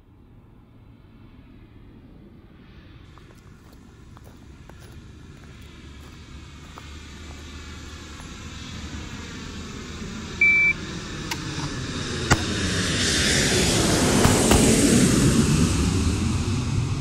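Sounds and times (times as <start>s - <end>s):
engine drone: 0.0s - 17.0s
loud electronic beep: 10.4s - 10.8s.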